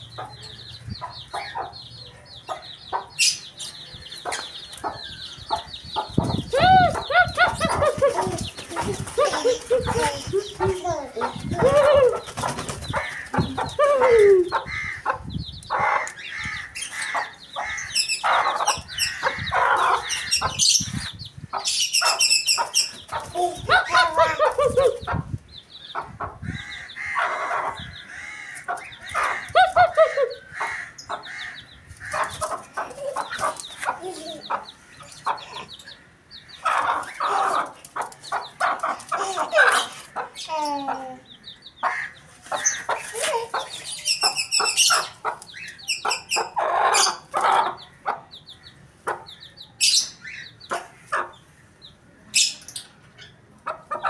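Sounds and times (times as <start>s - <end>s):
chicks peeping: 0.0s - 54.0s
hen squawking and clucking: 4.2s - 25.4s, 26.0s - 41.2s, 41.8s - 48.3s.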